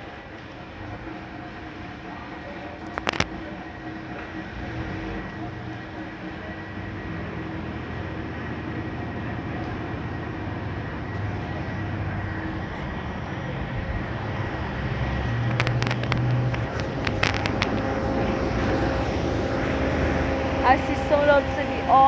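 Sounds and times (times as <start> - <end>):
low rumble: 0.0 - 22.0
machinery humming: 0.0 - 22.0
sharp clicks: 15.4 - 17.9.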